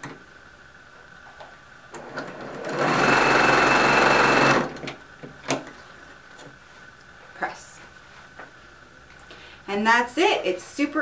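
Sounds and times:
sewing machine stitching: 2.0s - 4.9s.

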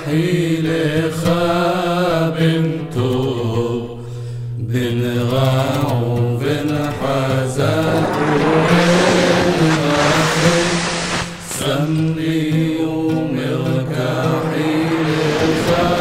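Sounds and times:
chant-like singing: 0.0s - 4.0s, 4.6s - 16.0s
low drone: 6.6s - 12.3s, 13.1s - 16.0s
loud rushing noise: 6.6s - 16.0s.

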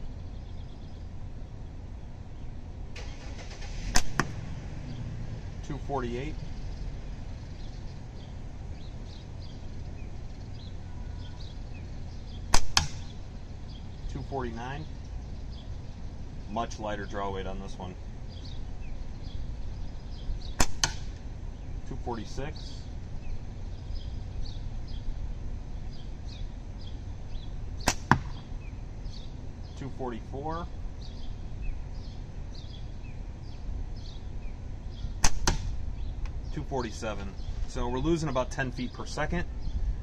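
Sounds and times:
steady low rumble: 0.0s - 40.0s
faint bird chirps: 5.8s - 20.6s, 21.5s - 40.0s
steel ball striking target: 12.5s - 13.1s, 20.6s - 21.2s, 27.8s - 28.5s, 35.2s - 35.8s.

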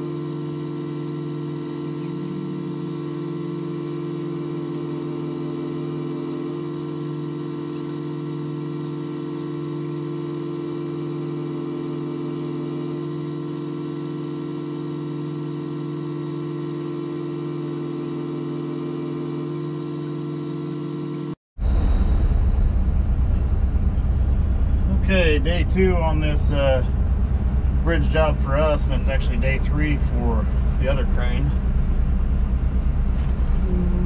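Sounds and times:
ambient drone music: 0.0s - 14.6s.

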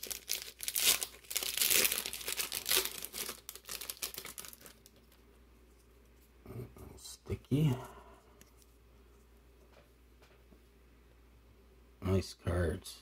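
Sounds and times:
foil wrapper crinkling and tearing: 0.0s - 5.2s.

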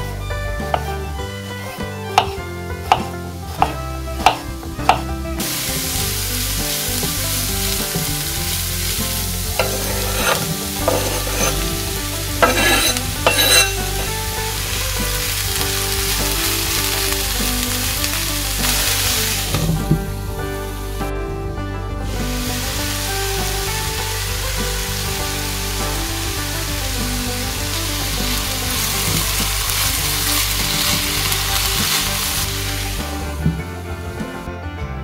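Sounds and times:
vegetables sizzling in oil: 0.7s - 21.1s, 22.1s - 33.4s
vegetables clattering into pan: 2.2s - 20.1s, 27.9s - 33.0s
knife scraping board: 9.6s - 11.8s, 12.4s - 14.2s.

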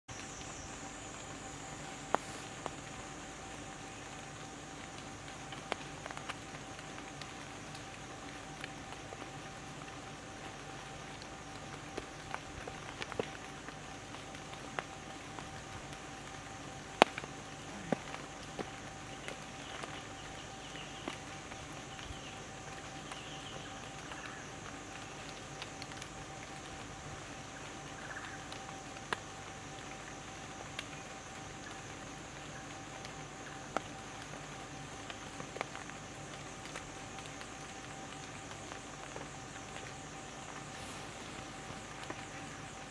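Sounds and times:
faint steady hum: 0.1s - 42.9s
steady hiss: 0.1s - 42.9s
light ticks: 4.8s - 26.7s.

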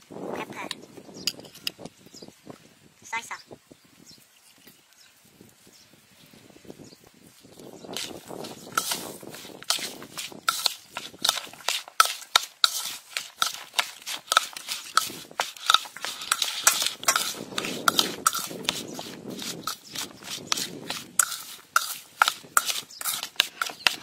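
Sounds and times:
metal spoon stirring wet mix: 7.8s - 24.0s
spoon clicking against bowl: 13.4s - 18.8s.

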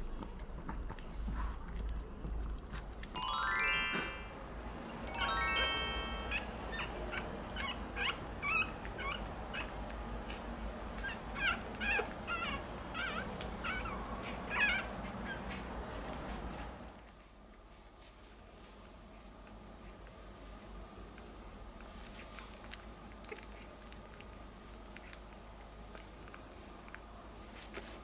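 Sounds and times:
puppies squeaking and whimpering: 6.0s - 9.8s, 11.0s - 15.5s.

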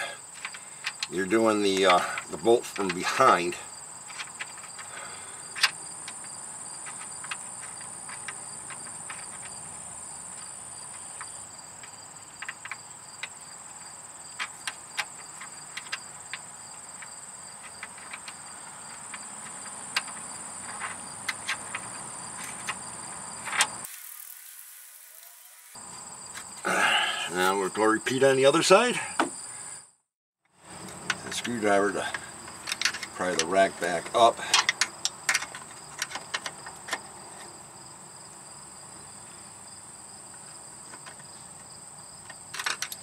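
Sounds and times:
crickets chirring: 0.0s - 43.0s
bolt clicking by hand: 31.0s - 37.0s, 42.2s - 43.0s.

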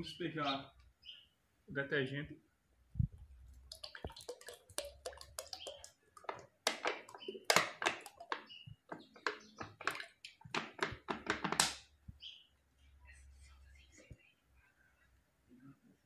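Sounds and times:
liquid glugging into bucket: 3.5s - 11.8s.

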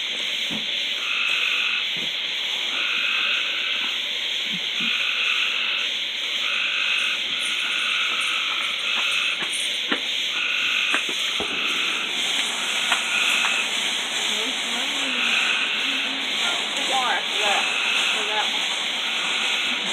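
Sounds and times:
frogs trilling: 0.0s - 19.9s
sharp snaps: 12.2s - 13.8s.

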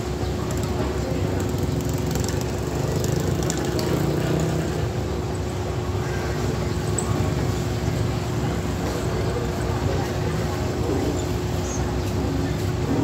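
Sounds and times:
road traffic engines: 0.0s - 13.0s
motorcycle passing: 1.1s - 5.0s.

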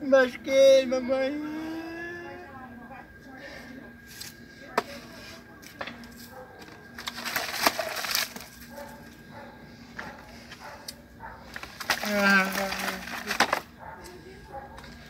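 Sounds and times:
faint voices: 0.0s - 15.0s.

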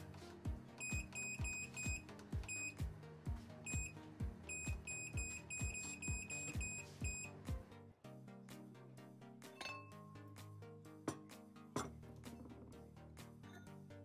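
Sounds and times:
background music with low beat: 0.0s - 14.0s
short high beeps: 3.7s - 7.3s.

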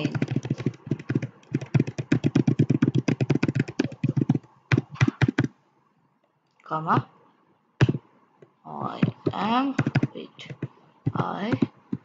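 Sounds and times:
typing on computer keyboard: 0.0s - 5.5s, 9.0s - 12.0s.

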